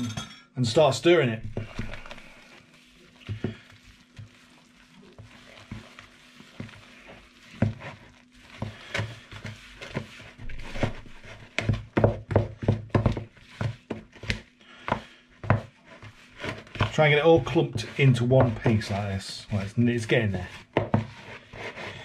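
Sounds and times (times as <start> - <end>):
spoon scraping bowl: 1.4 - 11.9.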